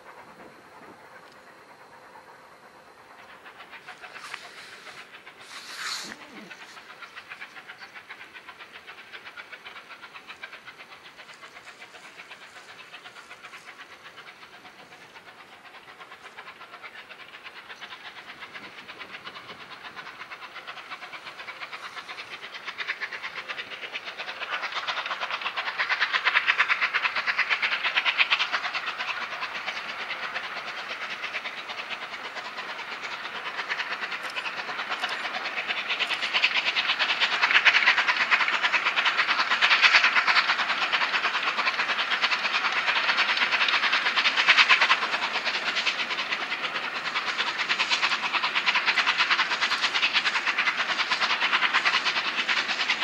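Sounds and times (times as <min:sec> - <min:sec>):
steam locomotive exhaust beats: 0:00.0 - 0:53.0.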